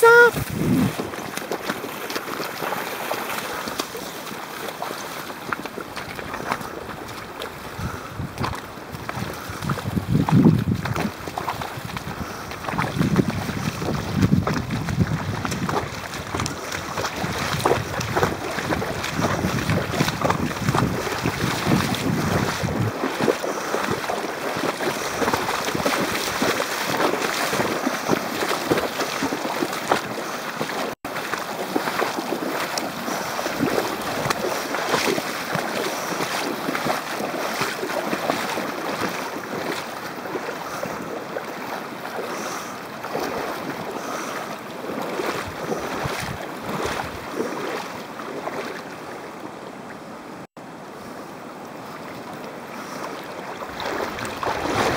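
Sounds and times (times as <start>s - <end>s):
river current rushing: 0.0s - 9.6s, 15.7s - 54.9s
wind buffeting microphone: 0.3s - 1.4s, 6.2s - 30.0s, 33.0s - 35.3s, 45.1s - 47.5s, 53.6s - 54.9s.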